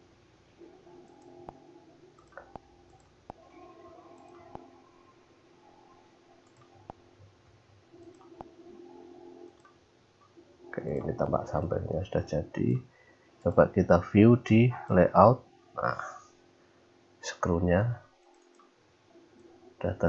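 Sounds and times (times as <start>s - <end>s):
computer mouse clicking: 0.9s - 4.8s, 5.8s - 7.0s, 7.9s - 8.6s, 9.3s - 10.4s, 18.2s - 19.6s.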